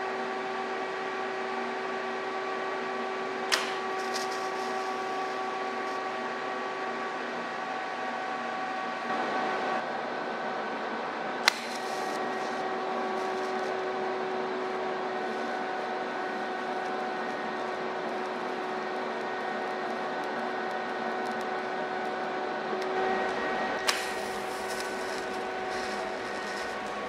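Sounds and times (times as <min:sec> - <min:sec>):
welding arc humming and hissing: 0:00.0 - 0:27.0
welding arc striking crack: 0:03.5 - 0:06.1, 0:11.4 - 0:13.8, 0:23.8 - 0:27.0.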